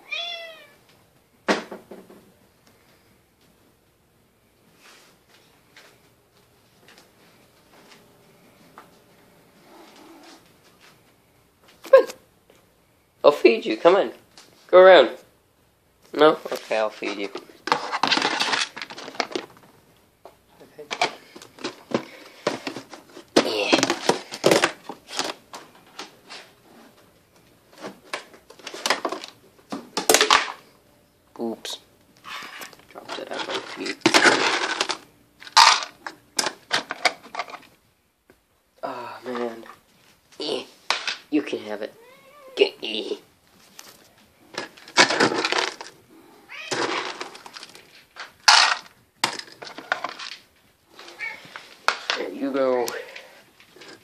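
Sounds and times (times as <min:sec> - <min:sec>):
cats meowing: 0:00.0 - 0:00.9, 0:41.9 - 0:42.8, 0:46.4 - 0:47.3, 0:50.9 - 0:51.7
plastic bowls clattering: 0:17.2 - 0:19.7, 0:20.8 - 0:26.1, 0:27.8 - 0:30.7, 0:32.2 - 0:37.7, 0:44.5 - 0:46.0, 0:46.7 - 0:50.5.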